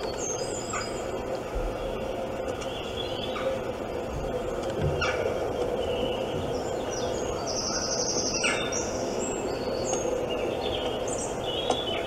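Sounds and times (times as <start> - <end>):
steady hiss: 0.0 - 12.0
birdsong through phone speaker: 4.3 - 12.0.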